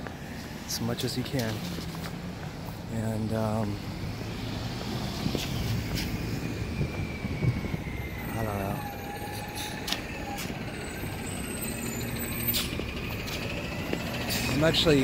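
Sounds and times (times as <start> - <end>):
vehicle rumbling past: 0.0 - 15.0
steady high tone: 6.3 - 15.0.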